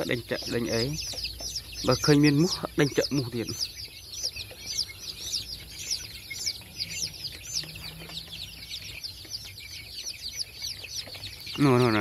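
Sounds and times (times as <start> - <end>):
chicks peeping: 0.0 - 12.0.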